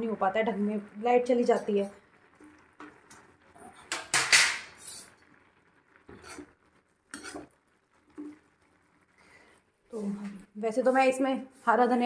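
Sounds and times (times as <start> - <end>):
metal spatula scraping in a pan: 3.6 - 5.3, 6.1 - 8.4.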